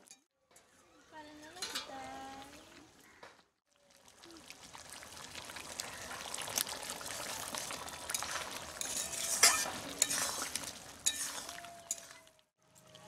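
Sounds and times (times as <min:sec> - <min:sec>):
curry sizzling in a pot: 0:01.5 - 0:13.0
metal spatula scraping a pot: 0:08.1 - 0:12.4.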